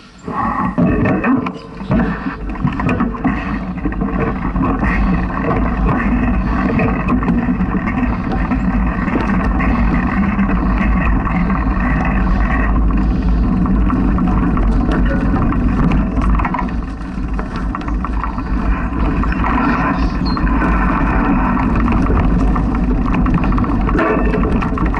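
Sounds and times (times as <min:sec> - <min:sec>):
bike clicks and rattles: 0:00.0 - 0:24.9
tyres rolling over dirt: 0:00.0 - 0:24.9
wind buffeting microphone: 0:02.0 - 0:24.9.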